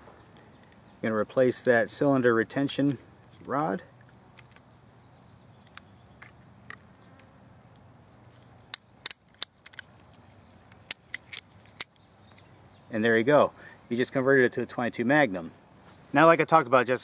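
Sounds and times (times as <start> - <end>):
revolver metal clicks: 2.5 - 4.7, 5.6 - 7.8, 8.6 - 12.5.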